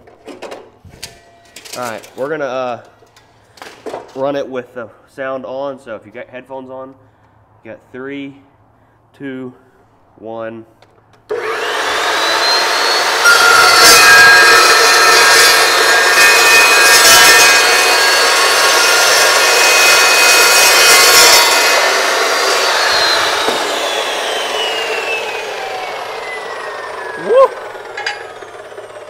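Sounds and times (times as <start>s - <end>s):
cold saw cutting steel: 11.3s - 29.0s.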